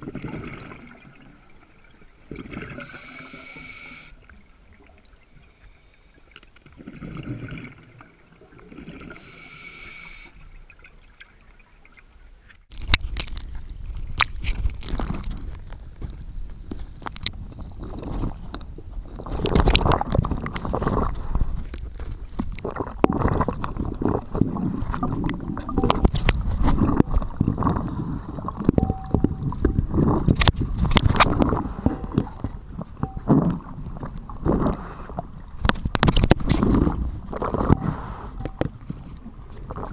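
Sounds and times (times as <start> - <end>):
diver exhaling bubbles underwater: 0.0 - 1.3, 2.3 - 4.1, 6.8 - 10.2, 22.6 - 35.3
continuous bubbling rumble: 0.0 - 2.9, 4.2 - 9.2, 10.3 - 39.9.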